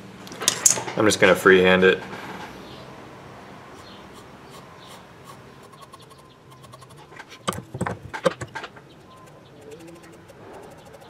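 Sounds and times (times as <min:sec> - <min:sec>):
pencil scratching on wood: 0:03.8 - 0:11.0
sharp knocks: 0:06.6 - 0:08.9.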